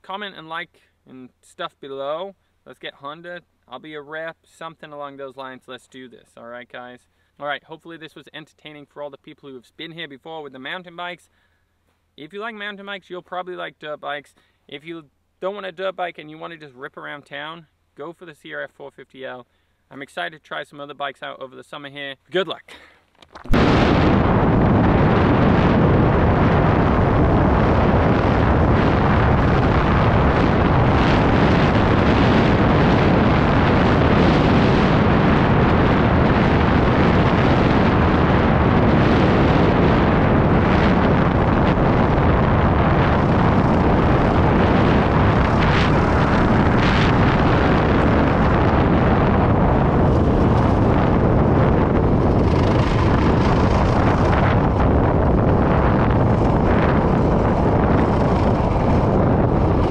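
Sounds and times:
wind noise on microphone: 23.4s - 59.9s
motorcycle engine running: 42.6s - 59.9s.

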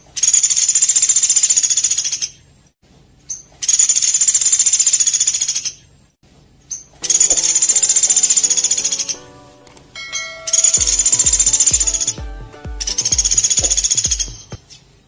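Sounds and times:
bird single note: 7.0s - 14.6s.

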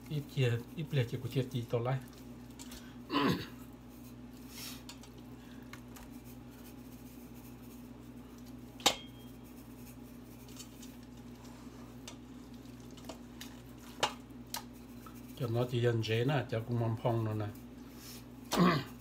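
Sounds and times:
steady low hum: 0.0s - 19.0s
handling raw meat in a pot: 3.7s - 18.4s
seasoning shaken from metal shaker: 6.1s - 8.6s, 9.3s - 11.4s.

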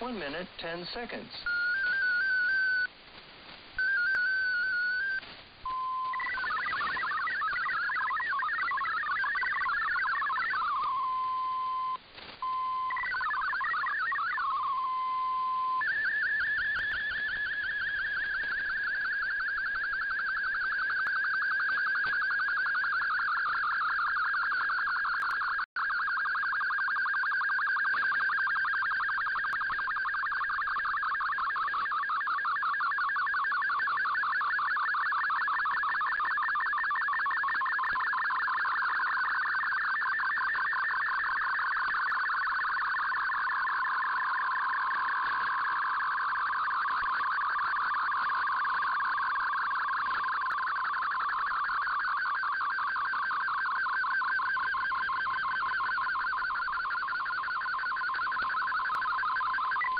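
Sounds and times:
radio hiss: 0.0s - 1.6s
warbling digital data tones: 0.0s - 2.9s, 3.8s - 59.9s.

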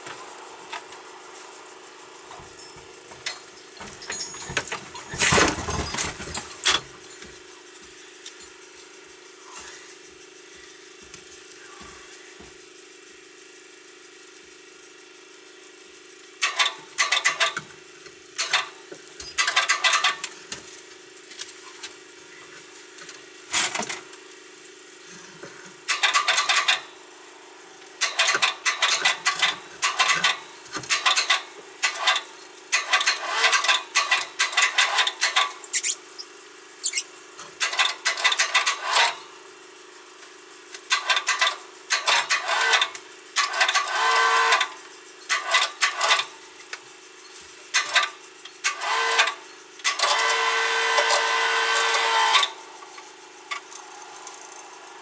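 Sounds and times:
chain hoist rattling clicks: 2.5s - 7.3s, 16.4s - 17.7s, 18.3s - 20.4s, 23.0s - 24.1s, 25.8s - 26.9s, 27.9s - 39.3s, 40.7s - 55.0s.

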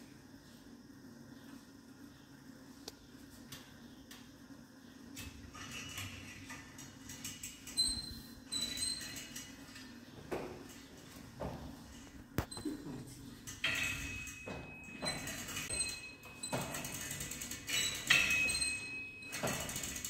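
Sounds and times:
gym machine hum: 0.0s - 20.0s
gym machine clicks: 5.2s - 9.9s, 13.4s - 20.0s.

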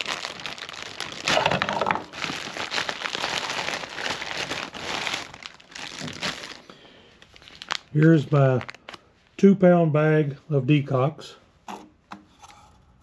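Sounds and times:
plastic bag crinkling: 0.0s - 9.3s.

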